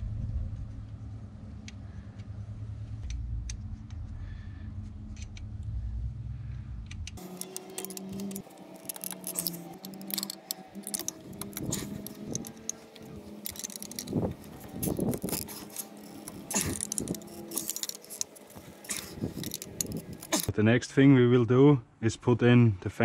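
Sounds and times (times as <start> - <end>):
metal tools clinking and scraping: 7.2 - 20.5.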